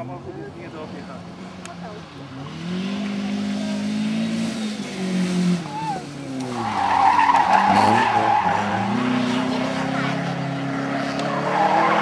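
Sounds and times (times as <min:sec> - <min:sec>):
car engine revving: 0:02.2 - 0:12.0
tyres squealing: 0:05.6 - 0:10.4.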